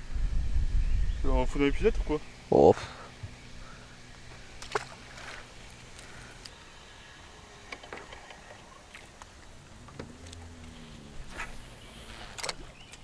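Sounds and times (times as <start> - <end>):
faint low hum: 0.0 - 13.0
faint ticks: 9.0 - 10.8.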